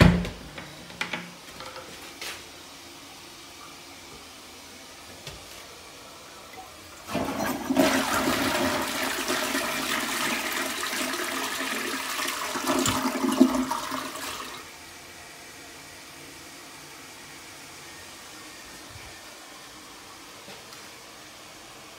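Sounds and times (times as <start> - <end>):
toilet flushing: 5.7 - 14.8.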